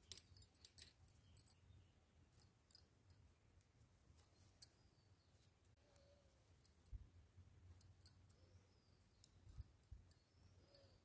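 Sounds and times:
knitting needles clicking: 0:00.0 - 0:01.6.

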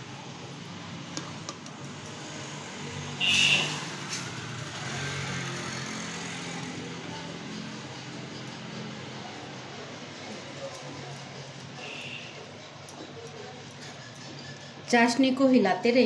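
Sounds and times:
brief shrill sound: 0:03.2 - 0:03.8.

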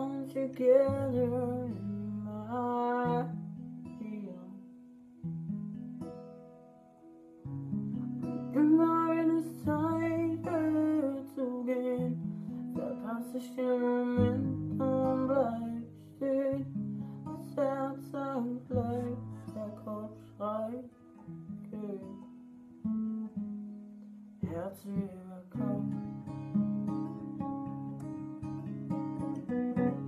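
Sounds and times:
man singing: 0:00.0 - 0:03.4, 0:04.0 - 0:04.7, 0:08.5 - 0:21.0, 0:21.6 - 0:22.2, 0:24.4 - 0:26.2
acoustic guitar chords: 0:00.0 - 0:30.0.

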